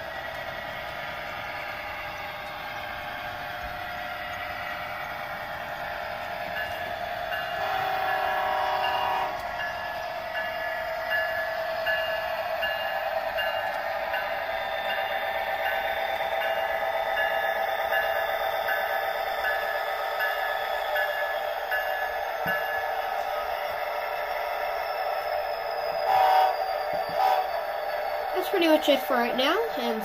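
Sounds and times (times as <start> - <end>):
model locomotive engine hum: 0.0 - 30.0
locomotive horn blast: 7.6 - 9.4, 26.1 - 26.6, 27.2 - 27.5.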